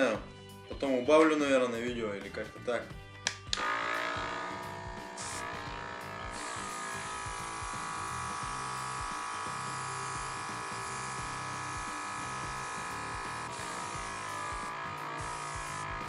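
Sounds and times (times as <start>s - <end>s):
compressor buzzing whine: 3.5s - 16.0s.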